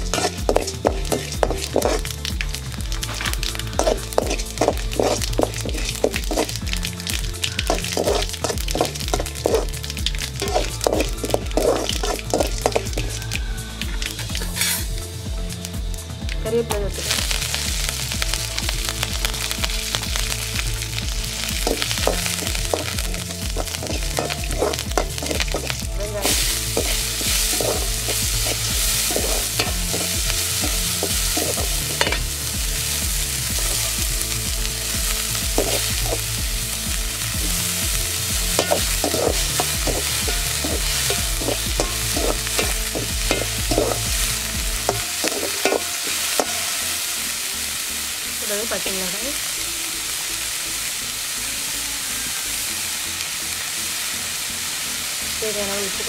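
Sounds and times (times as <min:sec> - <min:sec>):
ladle scraping pan: 0:00.0 - 0:02.2, 0:03.0 - 0:06.5, 0:14.4 - 0:14.9, 0:23.6 - 0:32.4, 0:38.5 - 0:46.7
spices sizzling in hot oil: 0:00.0 - 0:56.0.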